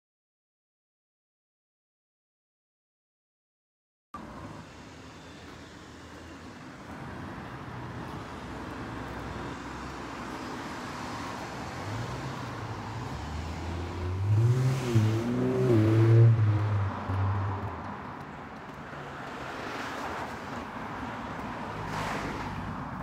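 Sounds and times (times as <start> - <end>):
steady road noise: 4.2 - 23.0
vehicle engine passing by: 9.8 - 18.1.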